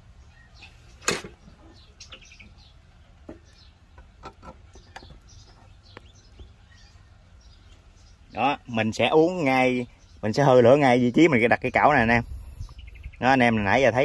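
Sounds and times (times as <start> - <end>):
faint bird chirps: 0.0 - 4.0, 11.7 - 13.8.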